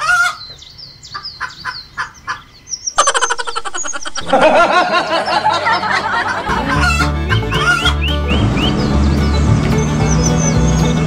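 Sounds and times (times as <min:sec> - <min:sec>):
chicken clucking: 0:00.0 - 0:11.0
small birds chirping: 0:00.0 - 0:11.0.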